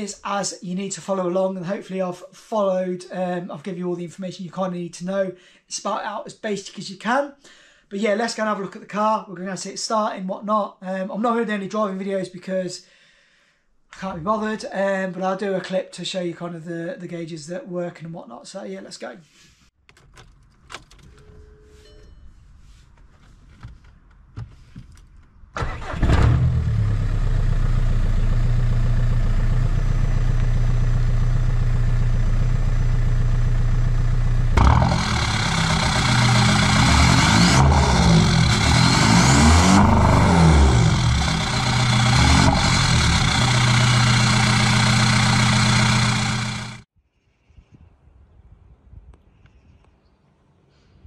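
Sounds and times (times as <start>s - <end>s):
diesel engine idling and revving: 25.6s - 46.9s.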